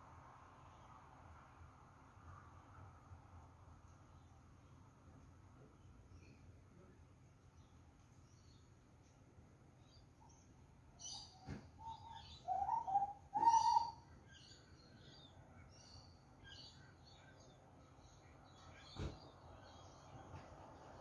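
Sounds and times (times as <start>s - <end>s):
bird singing piping notes: 9.8s - 19.0s.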